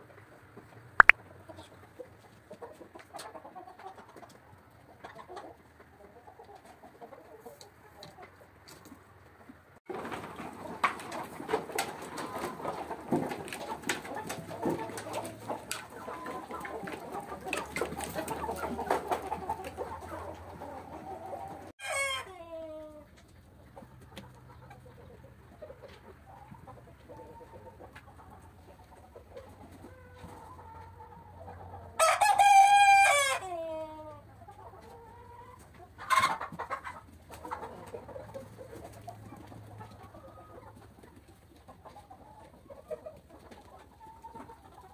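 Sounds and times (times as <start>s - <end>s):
chickens clucking: 0.0s - 44.9s
rooster crowing: 32.0s - 33.5s.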